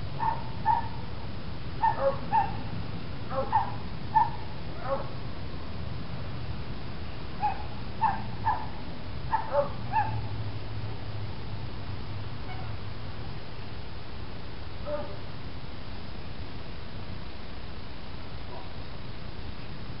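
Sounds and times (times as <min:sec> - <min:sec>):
steady low hum: 0:00.0 - 0:20.0
dog yipping: 0:00.2 - 0:01.0, 0:01.8 - 0:02.6, 0:03.3 - 0:05.1, 0:07.4 - 0:08.7, 0:09.3 - 0:10.2.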